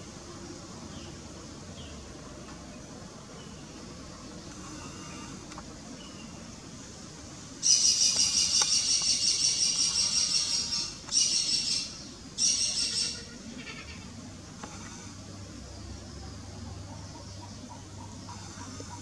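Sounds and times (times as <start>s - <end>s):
high-pitched chattering call: 7.6s - 14.1s.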